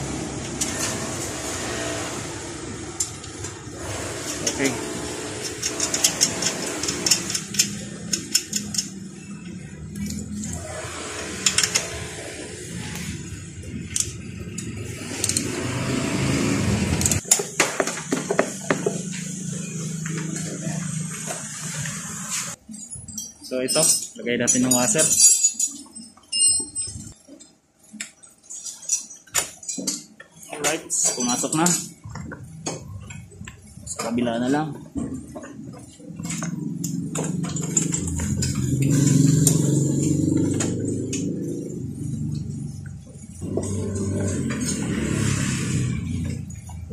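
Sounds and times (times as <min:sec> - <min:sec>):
metallic clicks and clinks: 0:05.4 - 0:10.6, 0:22.6 - 0:45.0
motor engine rumbling: 0:31.4 - 0:46.9.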